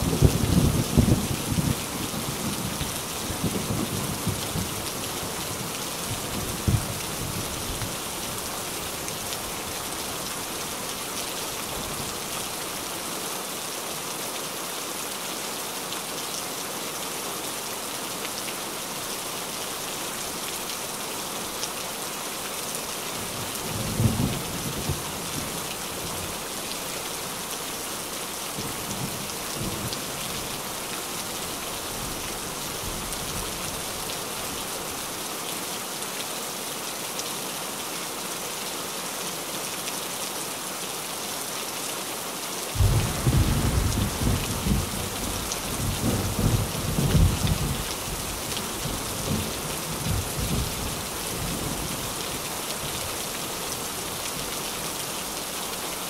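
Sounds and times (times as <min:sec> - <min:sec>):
rain on a tin roof: 0:00.0 - 0:56.0
thunder clap: 0:42.8 - 0:45.1
thunder rumbling: 0:42.8 - 0:47.8.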